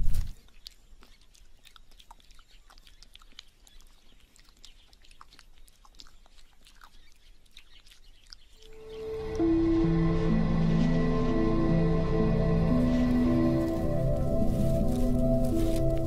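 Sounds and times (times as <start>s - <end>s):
kangaroo licking mouth clicks: 0.0s - 8.8s.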